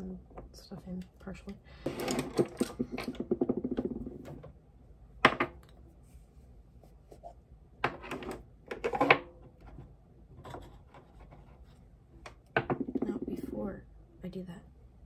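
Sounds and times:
makeup products clicking and knocking: 0:02.5 - 0:04.3.

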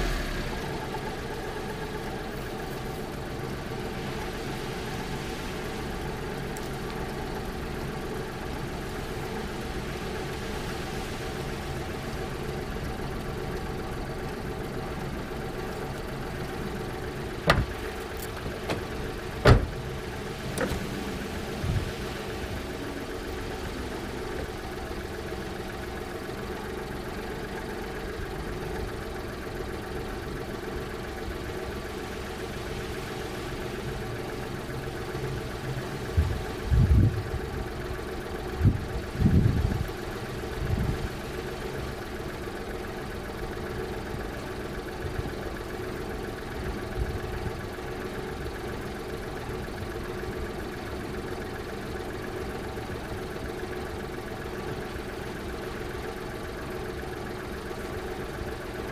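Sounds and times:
car engine idling: 0:00.0 - 0:58.9.

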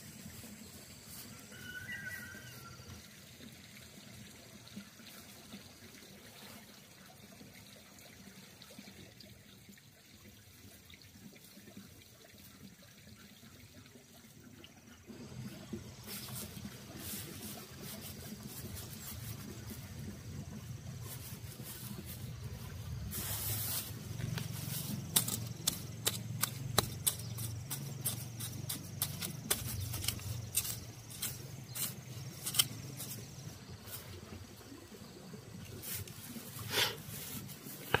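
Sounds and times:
dry straw rustling: 0:16.0 - 0:34.3, 0:35.7 - 0:38.0
machete scraping and chopping soil: 0:22.9 - 0:33.5, 0:35.8 - 0:38.0.

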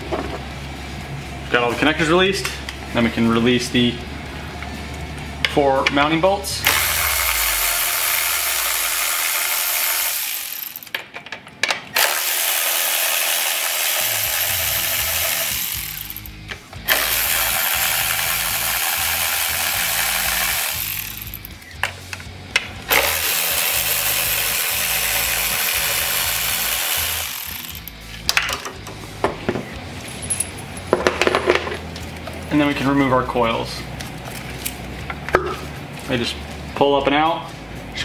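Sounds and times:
cordless electric ratchet spinning: 0:06.6 - 0:11.0, 0:12.0 - 0:21.8, 0:22.9 - 0:28.1.

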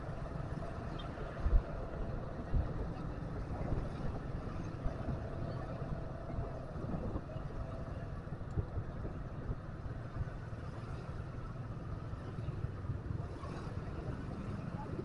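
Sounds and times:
motorbike engine and road noise: 0:00.0 - 0:15.0
street traffic: 0:00.0 - 0:15.0.

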